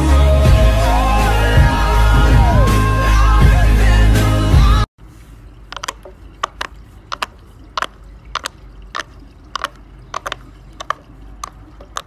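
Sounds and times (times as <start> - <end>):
fidget toy bubbles popping: 5.6 - 12.0.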